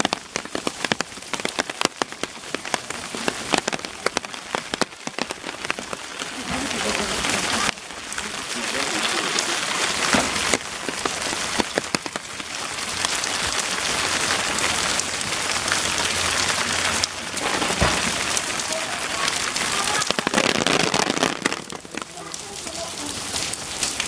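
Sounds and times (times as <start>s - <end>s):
heavy rain falling: 0.0s - 24.0s
raindrops tapping close by: 0.0s - 24.0s.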